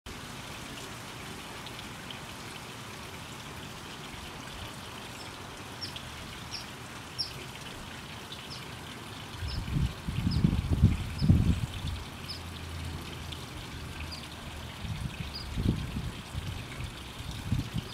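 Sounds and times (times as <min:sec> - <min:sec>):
fountain water trickling: 0:00.1 - 0:17.9
low rumbles on microphone: 0:09.4 - 0:12.0.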